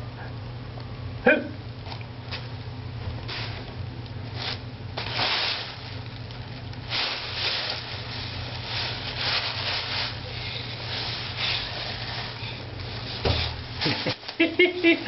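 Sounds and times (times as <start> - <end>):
plastic bag crinkling: 3.2 - 15.0.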